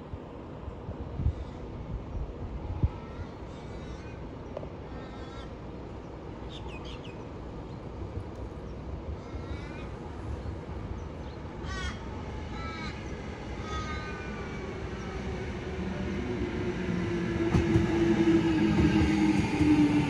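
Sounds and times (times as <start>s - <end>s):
electric train approaching: 9.9s - 20.0s.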